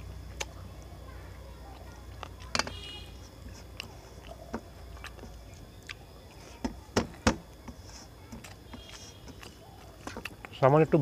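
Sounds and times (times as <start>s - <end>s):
chewing: 0.2s - 6.6s, 7.5s - 10.6s
fingers mixing rice on a metal plate: 7.6s - 10.6s.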